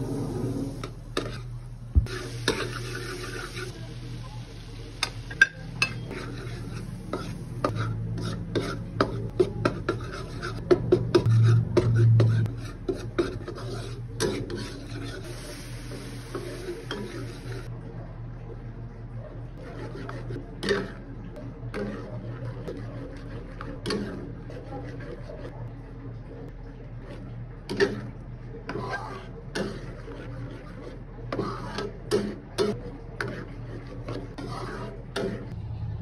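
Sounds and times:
faint sizzle: 0:00.0 - 0:08.3, 0:13.8 - 0:17.7
metal spatula scraping pan: 0:00.1 - 0:03.8, 0:05.8 - 0:17.7, 0:19.6 - 0:25.5, 0:27.0 - 0:35.6.

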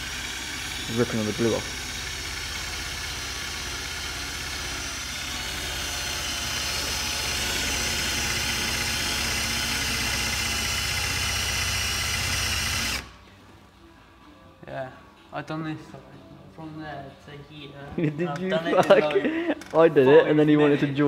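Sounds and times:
cordless drill motor hum: 0:00.0 - 0:13.2.

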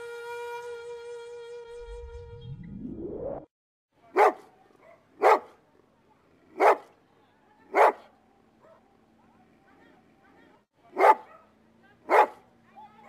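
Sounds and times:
dog barking: 0:04.1 - 0:05.6, 0:06.5 - 0:07.0, 0:07.7 - 0:09.4, 0:10.9 - 0:12.5.

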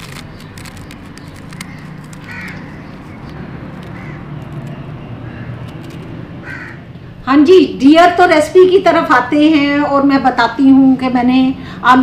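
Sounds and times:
crow cawing: 0:01.6 - 0:03.0, 0:03.8 - 0:04.4, 0:05.2 - 0:05.7, 0:06.4 - 0:06.9.

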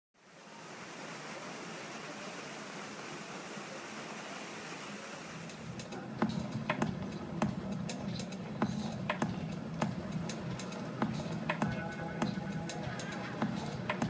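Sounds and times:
fountain water splashing into pool: 0:00.2 - 0:05.8.

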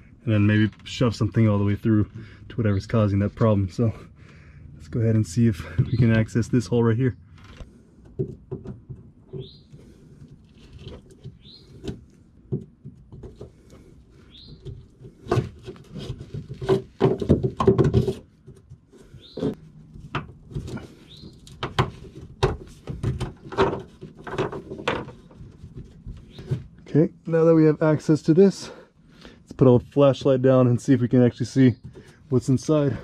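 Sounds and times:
bird chirps: 0:09.3 - 0:09.7, 0:11.4 - 0:11.8, 0:14.2 - 0:14.8, 0:19.2 - 0:19.5, 0:21.0 - 0:21.5.

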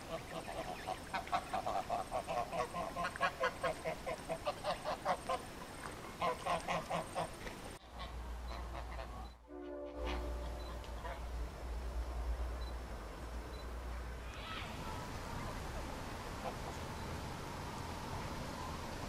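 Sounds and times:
geese honking: 0:00.0 - 0:05.4, 0:06.2 - 0:11.4
low steady rumble: 0:07.9 - 0:14.3.

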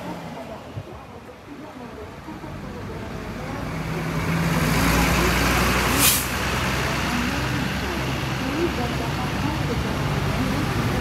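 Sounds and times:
bus diesel engine: 0:00.0 - 0:11.0
air brakes hissing: 0:05.9 - 0:06.4.

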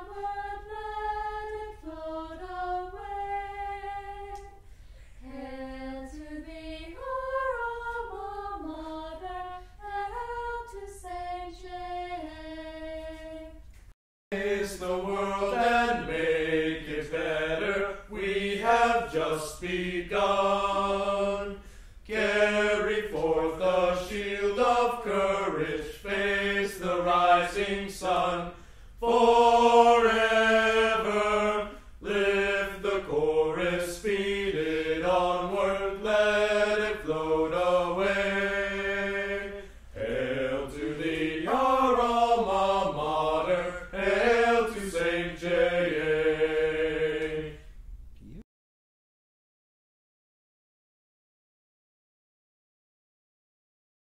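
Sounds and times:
voices singing: 0:00.0 - 0:04.6, 0:05.2 - 0:13.6, 0:14.3 - 0:48.4.

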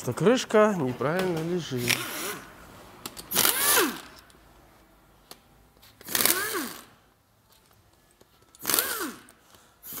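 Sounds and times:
power tool motor bursts: 0:03.3 - 0:04.1, 0:06.0 - 0:06.9, 0:08.6 - 0:10.0.

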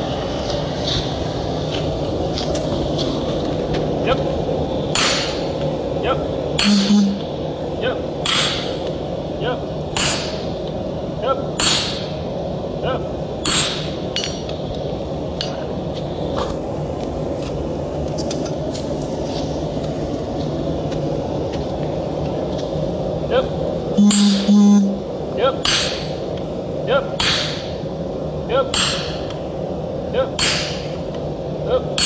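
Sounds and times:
steady hum: 0:00.0 - 0:32.0
hammer striking metal on anvil: 0:05.0 - 0:05.5, 0:06.6 - 0:07.4, 0:08.2 - 0:08.9, 0:10.0 - 0:10.5, 0:11.6 - 0:12.2, 0:13.4 - 0:14.6, 0:24.0 - 0:25.0, 0:25.6 - 0:26.2, 0:27.2 - 0:27.8, 0:28.7 - 0:29.4, 0:30.4 - 0:31.0.

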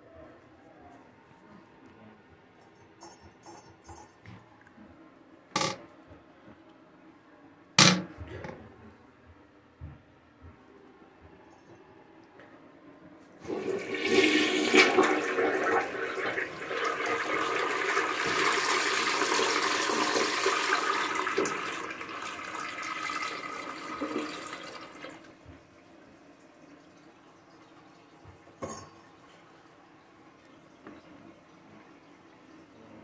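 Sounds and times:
toilet flushing: 0:13.4 - 0:33.0.

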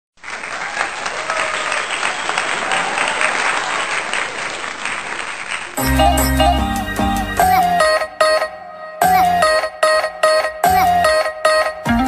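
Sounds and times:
crowd applauding: 0:00.2 - 0:06.2
music: 0:05.8 - 0:12.0.

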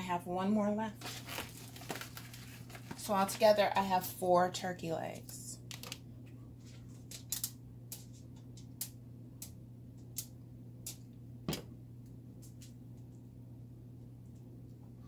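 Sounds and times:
low hum: 0:05.3 - 0:15.0.

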